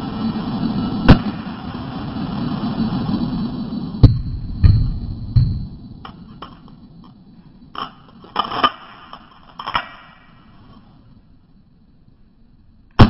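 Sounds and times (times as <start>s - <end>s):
heavy thumps: 4.0s - 6.6s.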